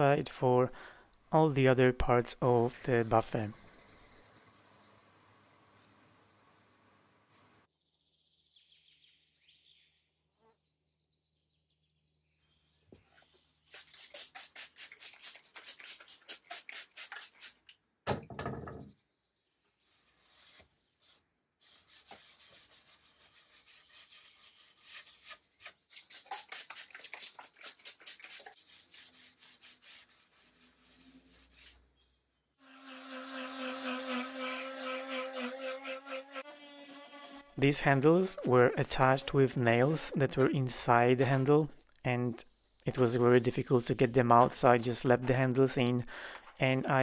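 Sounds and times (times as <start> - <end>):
cloth scrubbing wet wood: 25.9 - 31.8, 32.8 - 37.6.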